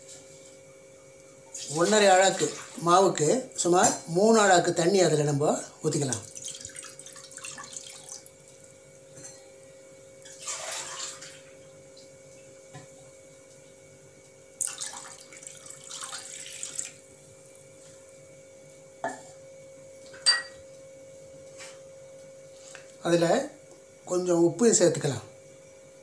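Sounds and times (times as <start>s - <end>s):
steady hum: 0.0s - 10.4s, 11.0s - 26.0s
water pouring into pan: 6.2s - 8.4s, 10.3s - 11.5s, 14.6s - 17.0s.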